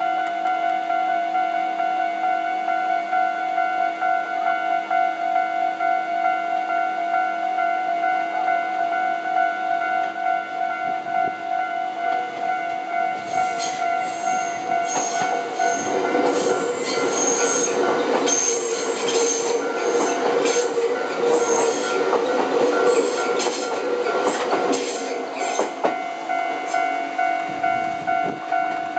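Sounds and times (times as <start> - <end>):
crossing warning bell ringing: 0.0 - 28.9
train rumble: 13.2 - 28.9
train wheels squealing: 13.3 - 22.0, 22.8 - 25.8
wheels clacking over rail joints: 13.4 - 26.0.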